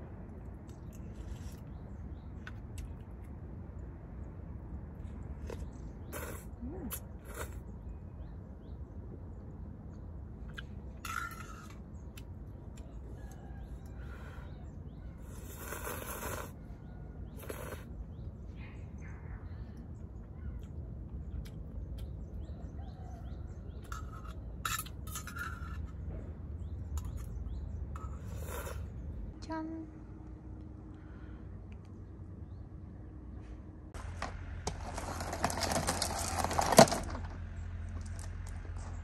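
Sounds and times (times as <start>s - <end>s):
low background rumble: 0.0s - 39.0s
person slurping noodles: 6.1s - 7.6s, 15.3s - 16.6s, 17.4s - 17.9s, 28.2s - 28.9s.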